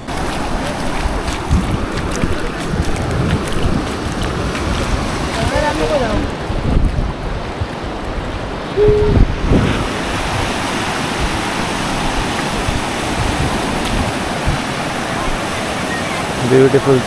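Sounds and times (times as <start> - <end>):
waves washing over sand: 0.0 - 17.0
short steady tone: 8.8 - 9.3.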